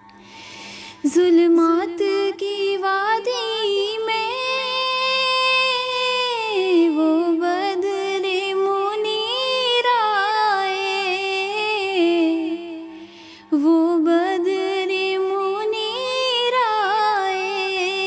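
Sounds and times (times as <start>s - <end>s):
woman singing: 1.0s - 12.9s, 13.5s - 18.0s.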